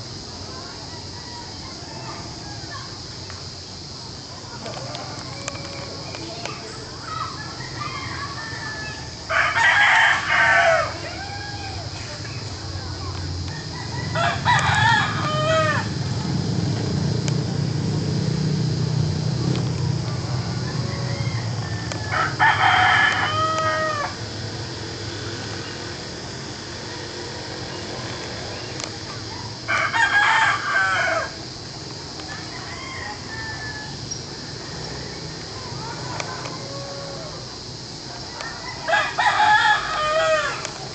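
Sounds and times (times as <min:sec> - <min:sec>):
steady background hiss: 0:00.0 - 0:40.9
rooster crowing: 0:00.8 - 0:03.0, 0:07.0 - 0:12.0, 0:13.4 - 0:16.1, 0:20.0 - 0:24.4, 0:29.3 - 0:40.8.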